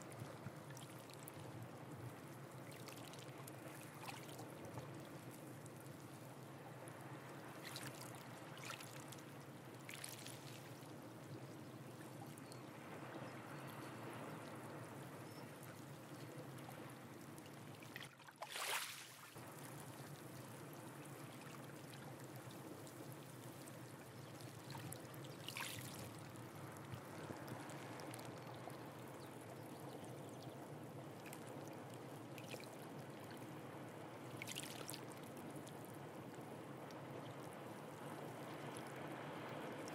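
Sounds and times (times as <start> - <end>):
water splashes: 7.5 - 10.9, 16.6 - 28.7, 34.3 - 35.8
water lapping among rocks: 17.9 - 19.4.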